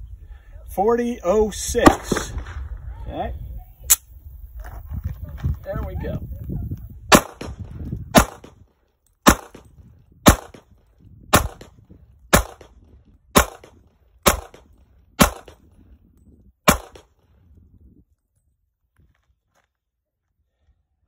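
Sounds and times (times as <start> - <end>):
pistol shots with echo: 1.8 - 2.5, 7.1 - 8.6, 9.2 - 10.7, 11.3 - 15.7, 16.7 - 17.2.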